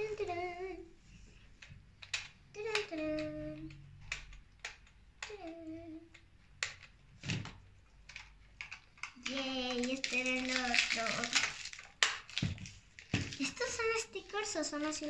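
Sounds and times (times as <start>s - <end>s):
girl humming: 0.0s - 1.0s, 2.6s - 3.7s, 5.2s - 6.1s
sharp plastic clicks: 1.5s - 12.5s.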